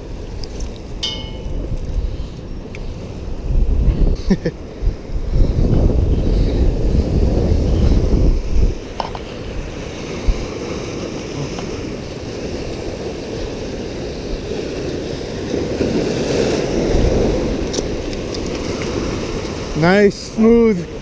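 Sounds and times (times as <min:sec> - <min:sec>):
wind buffeting microphone: 0:00.0 - 0:21.0
surf washing against rocks: 0:04.4 - 0:21.0.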